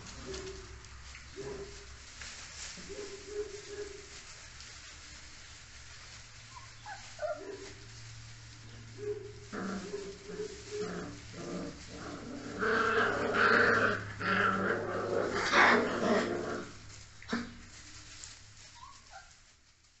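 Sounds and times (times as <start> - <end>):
puppies growling: 6.5 - 7.9, 8.8 - 17.8.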